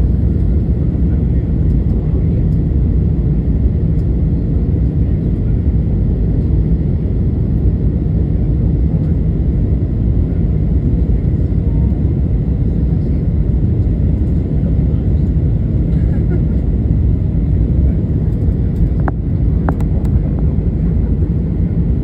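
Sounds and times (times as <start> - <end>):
jet engines rumbling: 0.0 - 22.0.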